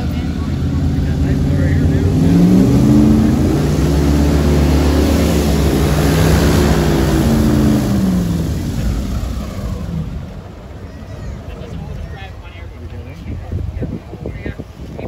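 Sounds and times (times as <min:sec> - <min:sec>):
airboat engine and propeller: 0:00.0 - 0:15.0.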